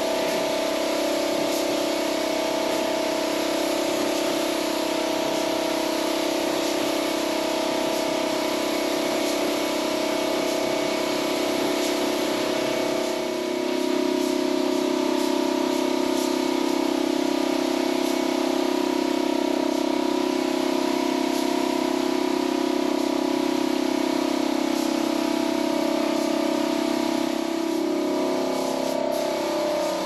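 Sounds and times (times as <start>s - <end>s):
loud machine hum: 0.0s - 30.0s
paint spray gun hissing: 0.0s - 30.0s.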